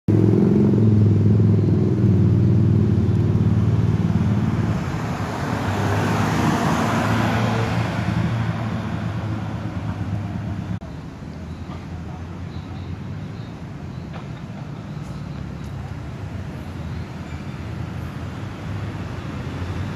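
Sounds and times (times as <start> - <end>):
passing vehicle rushing: 0.1 - 10.8
vehicle engine humming: 0.1 - 19.9.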